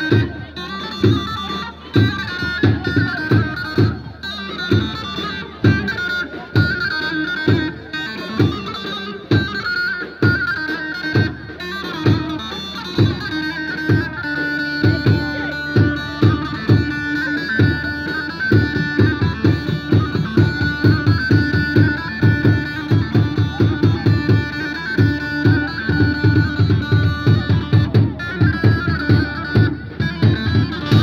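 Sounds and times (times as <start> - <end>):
heavy steady drum beat: 0.0 - 31.0
reedy high melody: 0.0 - 31.0.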